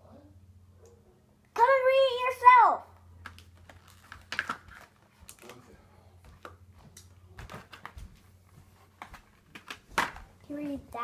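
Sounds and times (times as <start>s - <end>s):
low steady hum: 0.0s - 11.0s
cards being flipped: 3.2s - 5.6s.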